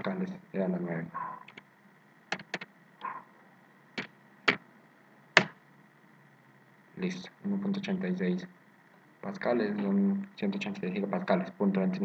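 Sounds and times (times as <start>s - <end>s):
keyboard key clicks: 2.3s - 2.7s.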